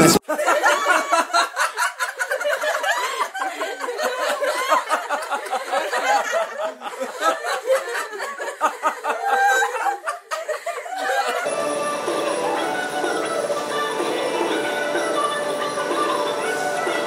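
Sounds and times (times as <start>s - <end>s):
people snickering and chuckling: 0.0s - 17.0s
background music: 11.4s - 17.0s.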